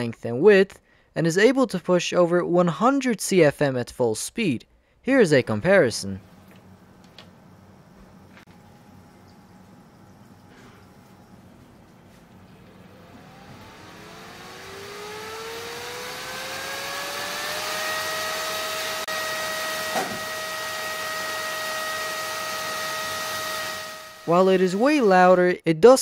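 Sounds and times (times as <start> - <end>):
electric cooling fan whirring: 5.4 - 25.5.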